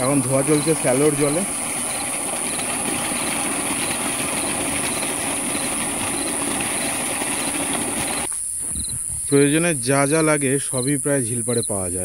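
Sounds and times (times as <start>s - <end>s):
water gushing from pipe onto ground: 0.0s - 8.3s
crickets chirping: 0.0s - 12.0s.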